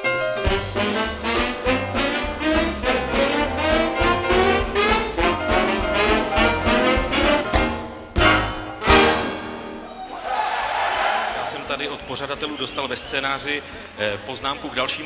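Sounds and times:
big band playing jazz: 0.0s - 9.8s.

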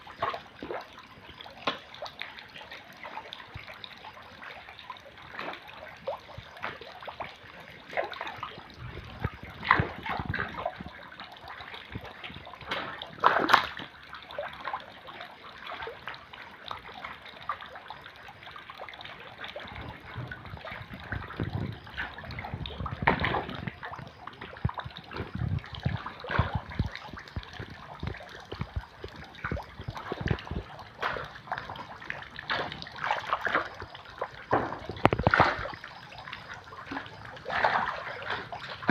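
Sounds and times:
water splashing and sloshing: 0.0s - 38.9s.

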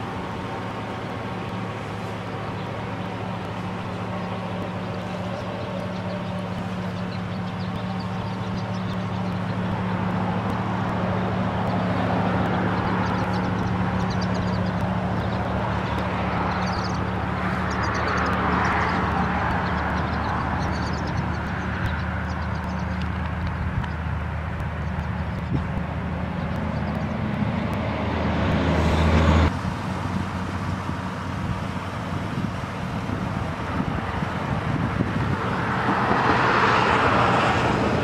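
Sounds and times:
low vehicle hum: 0.0s - 38.0s
rushing noise: 0.0s - 38.0s.

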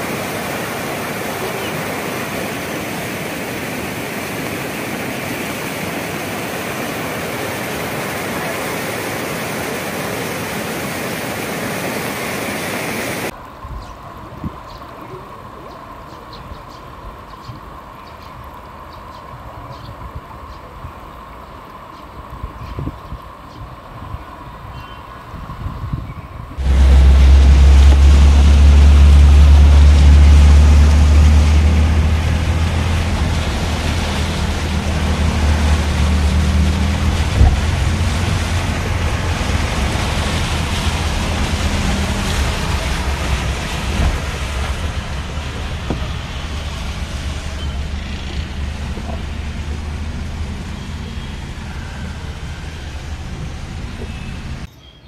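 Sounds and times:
water rushing under car: 0.0s - 24.7s, 26.4s - 54.7s
low rumble inside car: 26.6s - 54.7s.

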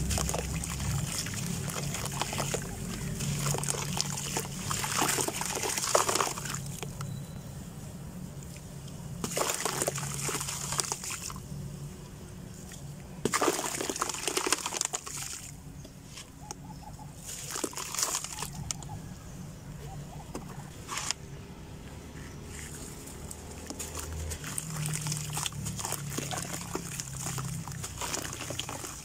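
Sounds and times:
crumbs pattering into water: 0.0s - 7.0s, 9.2s - 11.4s, 13.3s - 15.5s, 17.3s - 18.8s, 23.6s - 29.0s
dry dirt crumbling by hand: 0.0s - 7.2s, 9.2s - 11.4s, 12.6s - 16.4s, 17.2s - 18.8s, 22.2s - 29.0s.

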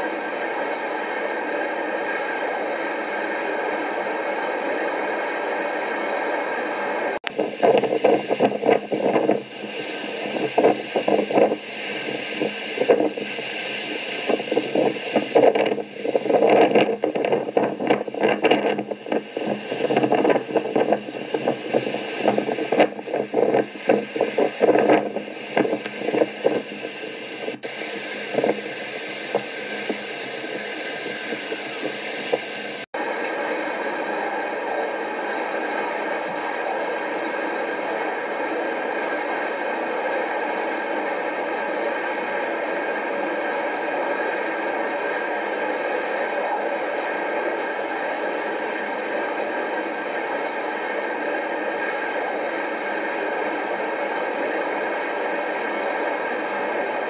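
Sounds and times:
steady hiss: 0.0s - 57.0s
wind buffeting microphone: 7.3s - 32.8s.

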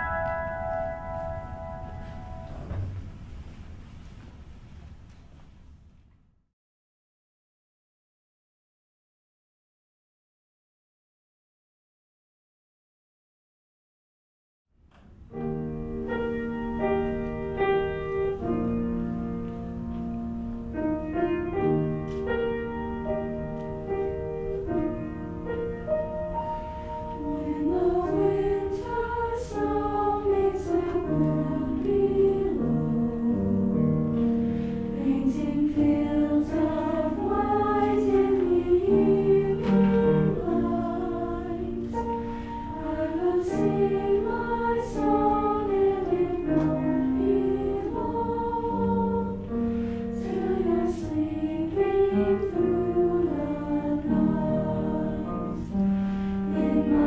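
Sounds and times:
piano accompaniment: 0.0s - 4.8s, 15.0s - 57.0s
choir singing: 24.6s - 57.0s.

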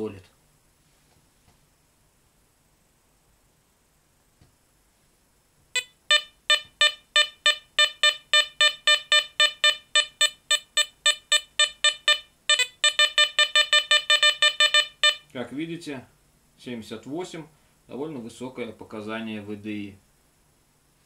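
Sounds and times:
metal detector beeping: 5.8s - 15.3s.

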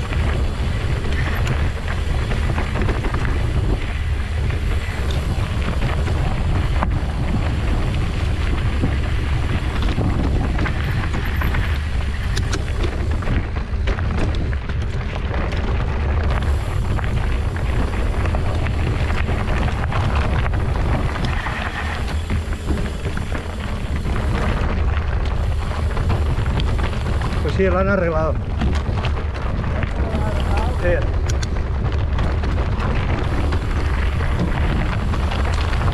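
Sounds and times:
wind buffeting microphone: 0.0s - 35.9s
sharp clicks and knocks: 17.3s - 35.9s.

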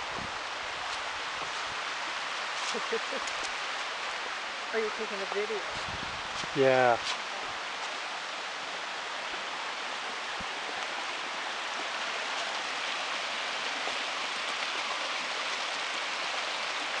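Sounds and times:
creek water rushing over stones: 0.0s - 17.0s.

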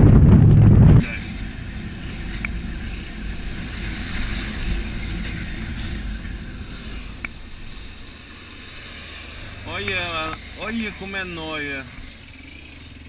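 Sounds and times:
wind rush on microphone: 0.0s - 8.4s
motorcycle engine: 0.0s - 13.0s
road noise: 0.0s - 13.0s.

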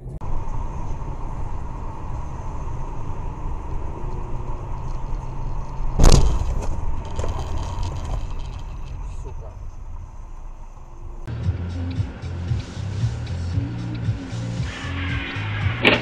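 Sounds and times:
road and engine rumble: 0.0s - 16.0s
faint steady whine: 0.2s - 11.3s
sharp loud thump: 6.0s - 6.8s.

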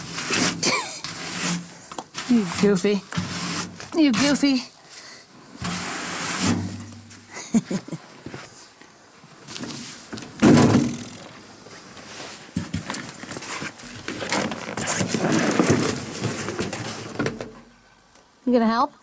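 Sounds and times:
clothing rubbing against camera: 0.0s - 4.6s.

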